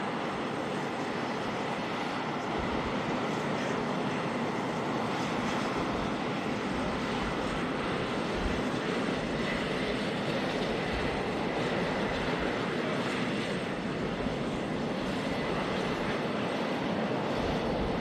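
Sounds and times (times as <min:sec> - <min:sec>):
aircraft engines running: 0:00.0 - 0:18.0.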